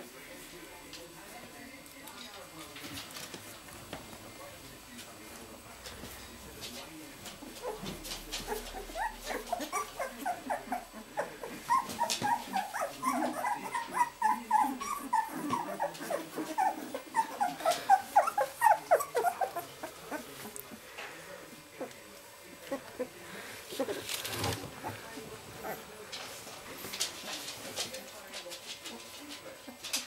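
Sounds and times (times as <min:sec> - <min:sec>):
puppies squeaking and whimpering: 0:07.6 - 0:20.4.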